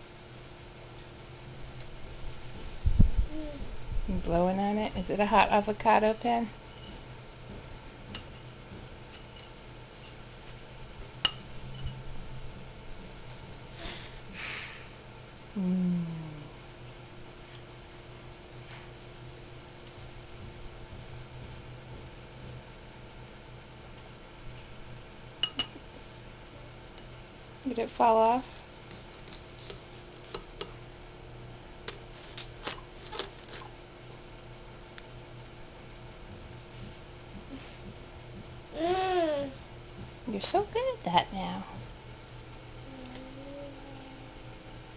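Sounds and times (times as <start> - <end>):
child blowing breathy puffs: 13.7 - 15.0
fork clinking against ceramic bowl: 25.4 - 25.8, 31.9 - 33.7.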